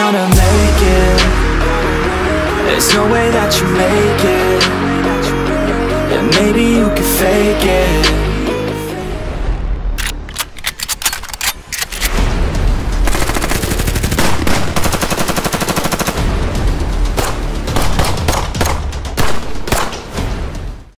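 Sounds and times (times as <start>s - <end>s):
deep bass: 0.3s - 10.3s, 12.2s - 14.4s
gunshots: 13.0s - 16.4s, 17.2s - 20.2s
machine-gun burst: 13.1s - 16.3s.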